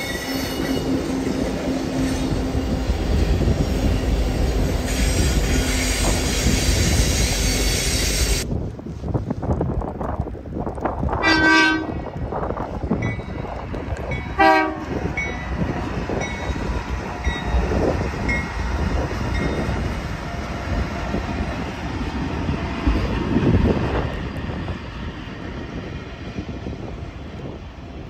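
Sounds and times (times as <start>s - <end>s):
diesel locomotives passing: 0.0s - 28.0s
train horn blast: 11.2s - 12.0s, 14.4s - 15.0s.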